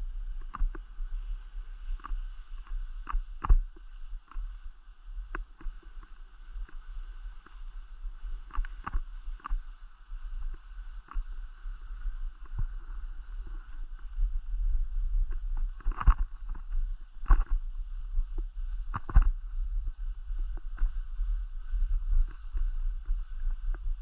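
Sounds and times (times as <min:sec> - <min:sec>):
skis scraping over snow: 0:00.0 - 0:24.0
wind buffeting microphone: 0:10.4 - 0:24.0.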